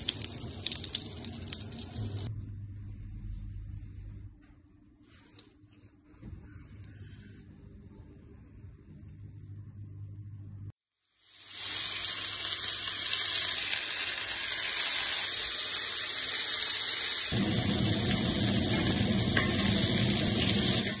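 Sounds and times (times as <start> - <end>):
beef sizzling: 0.0 - 2.3, 10.9 - 21.0.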